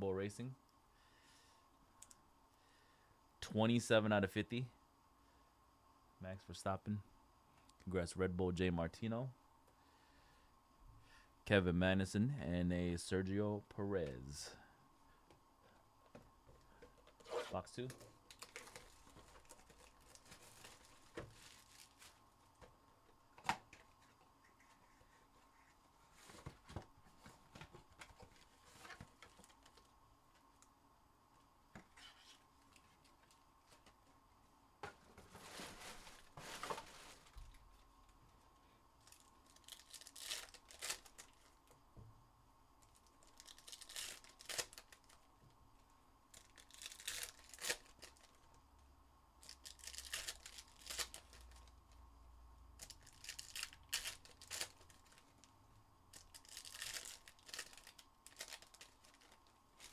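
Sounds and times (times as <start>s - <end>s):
foil wrappers tearing and crinkling: 18.3s - 22.2s, 39.0s - 41.6s, 42.9s - 45.2s, 46.3s - 48.5s, 49.4s - 51.7s, 52.8s - 55.3s, 56.1s - 59.9s.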